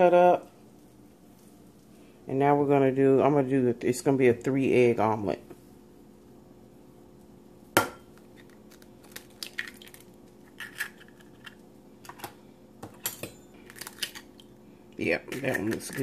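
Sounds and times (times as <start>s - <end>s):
egg cracking on bowl rim: 7.8s - 11.7s, 13.7s - 14.5s
eggshell crackling: 8.1s - 11.8s, 13.6s - 16.0s.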